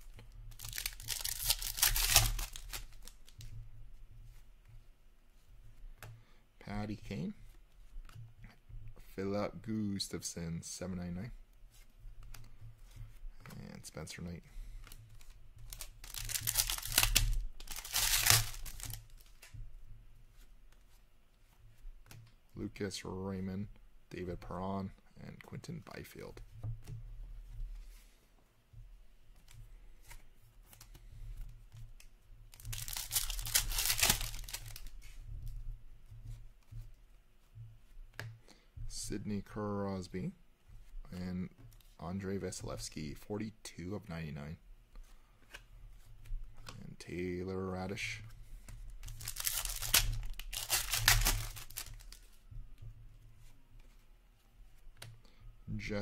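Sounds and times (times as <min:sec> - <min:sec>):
light rustling of cards: 0:00.0 - 0:23.4, 0:24.2 - 0:56.0
foil wrapper crinkling and ripping: 0:00.5 - 0:03.4, 0:15.7 - 0:19.3, 0:32.5 - 0:35.0, 0:49.0 - 0:52.2.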